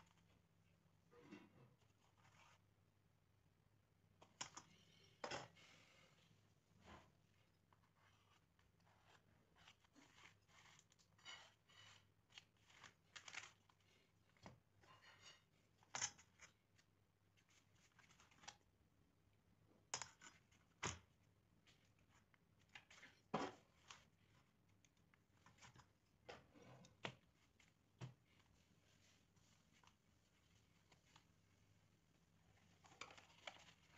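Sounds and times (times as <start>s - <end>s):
knife scratching cardboard: 8.0s - 13.5s.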